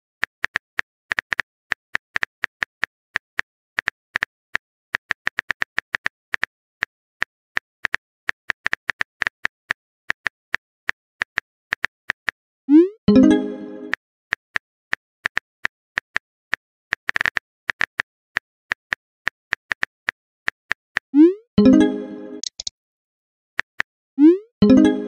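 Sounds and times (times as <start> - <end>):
phone keyboard typing clicks: 22.4 - 22.7.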